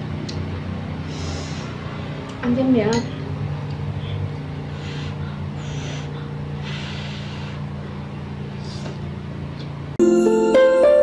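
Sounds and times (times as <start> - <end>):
steady low hum: 0.0 - 10.0
person blowing soft puffs: 4.7 - 7.8.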